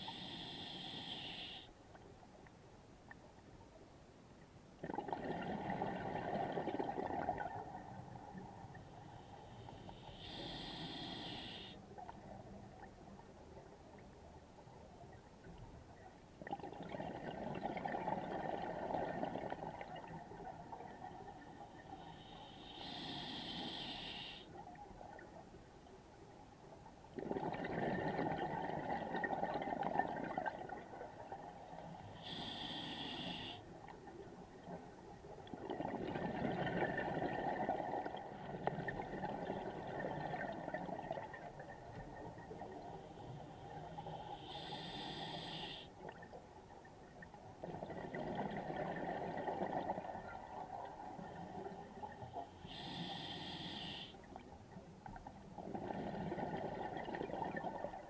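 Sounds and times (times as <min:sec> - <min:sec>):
regulator inhalation hiss: 0:00.0 - 0:01.7, 0:10.0 - 0:11.8, 0:22.2 - 0:24.5, 0:32.2 - 0:33.6, 0:44.0 - 0:45.9, 0:52.6 - 0:54.2
exhaled bubbles gurgling: 0:04.8 - 0:08.8, 0:16.4 - 0:23.7, 0:27.1 - 0:46.4, 0:47.2 - 0:53.6, 0:55.4 - 0:58.0.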